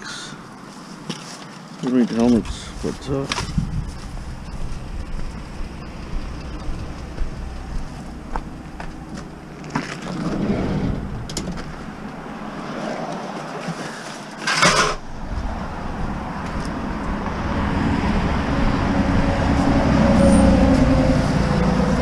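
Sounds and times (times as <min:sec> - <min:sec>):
road traffic passing: 0:00.0 - 0:22.0
vehicle approaching rumble: 0:03.5 - 0:13.0, 0:15.0 - 0:22.0.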